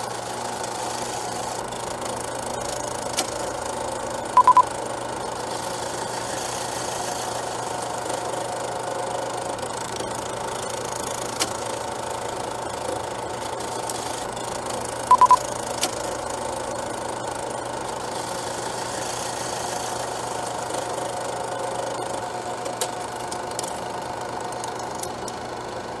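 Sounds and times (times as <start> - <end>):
film projector whirring: 0.0 - 26.0
loud high beeps: 4.4 - 4.7, 15.1 - 15.4.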